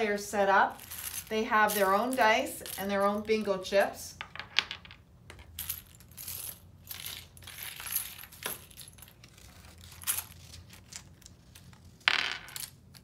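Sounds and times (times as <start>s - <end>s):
plastic chips clattering on table: 11.0s - 13.0s.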